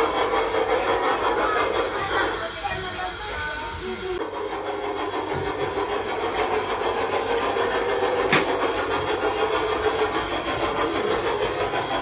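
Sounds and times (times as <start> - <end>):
mechanical hum: 0.0 - 12.0.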